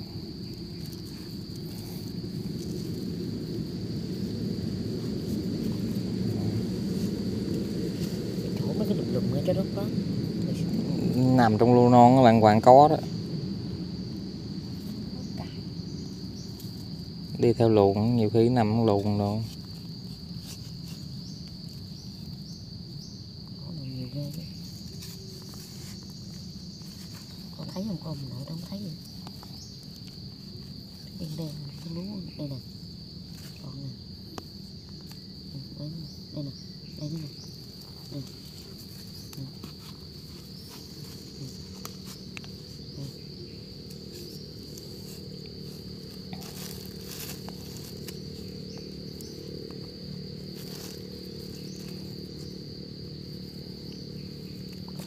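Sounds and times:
insects chirring: 0:00.0 - 0:55.0
wooden stick digging dry soil: 0:43.9 - 0:48.6.

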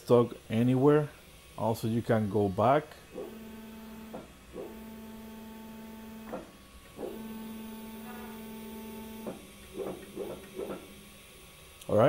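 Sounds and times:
printer motor humming: 0:03.0 - 0:11.8.

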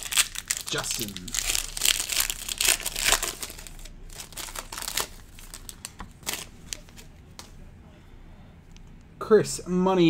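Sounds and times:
foil pack crinkling: 0:00.0 - 0:07.1.

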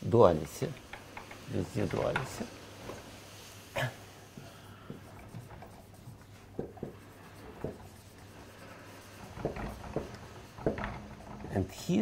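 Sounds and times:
marker writing on whiteboard: 0:04.8 - 0:10.8.

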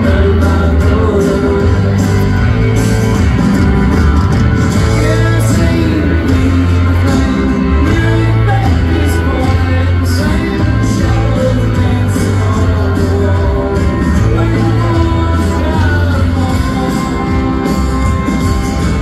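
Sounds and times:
man singing: 0:00.0 - 0:03.0, 0:04.7 - 0:18.0
rock band playing live: 0:00.0 - 0:19.0.

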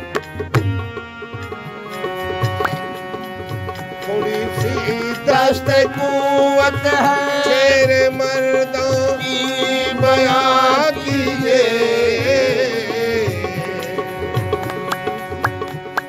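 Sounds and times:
hand drum beat: 0:00.0 - 0:16.0
harmonium melody: 0:00.0 - 0:16.0.

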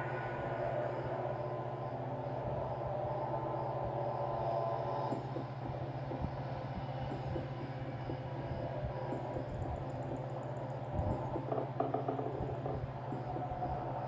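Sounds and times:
low rumbling drone: 0:00.0 - 0:14.0
faint clicks and ticks: 0:04.2 - 0:14.0.

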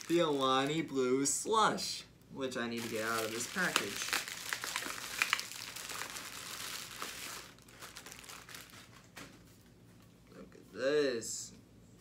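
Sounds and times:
plastic wrapping crinkling: 0:00.0 - 0:01.0, 0:02.7 - 0:09.6.

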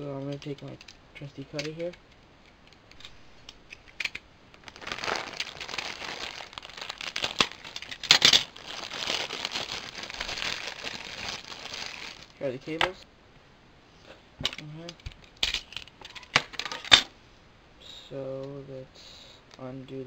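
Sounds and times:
plastic bag crinkling: 0:02.9 - 0:13.0.

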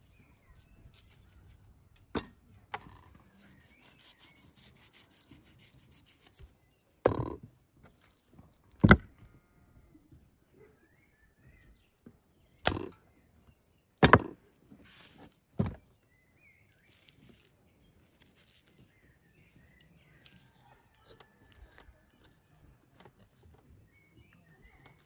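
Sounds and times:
faint cutting and handling: 0:03.2 - 0:06.6, 0:16.6 - 0:23.6
knife chopping on wooden board: 0:08.8 - 0:09.1, 0:12.6 - 0:13.0.

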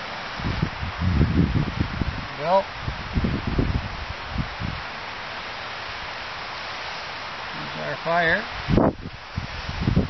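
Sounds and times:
wind buffeting microphone: 0:00.0 - 0:05.0, 0:08.5 - 0:10.0
windy rustle: 0:00.0 - 0:10.0.

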